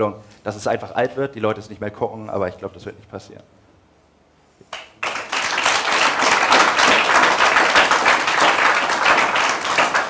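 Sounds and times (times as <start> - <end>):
audience applauding: 4.8 - 10.0.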